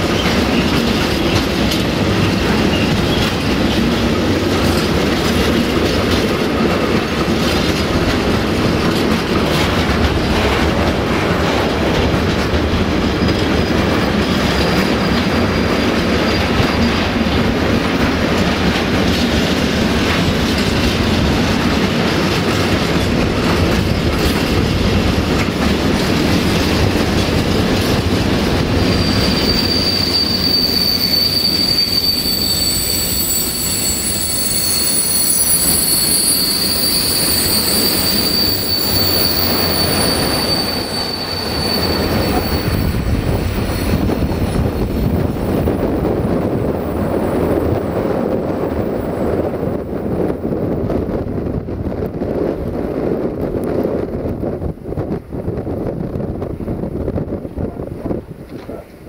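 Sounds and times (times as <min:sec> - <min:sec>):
train wheels rumbling on track: 0:00.0 - 0:59.0
high-pitched wheel squeal: 0:28.7 - 0:44.8.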